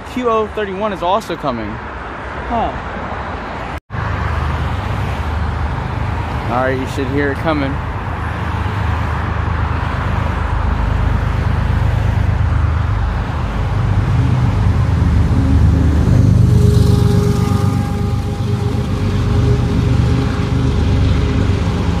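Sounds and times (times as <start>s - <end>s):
road traffic: 0.0s - 22.0s
diesel freight train rumble: 4.6s - 22.0s.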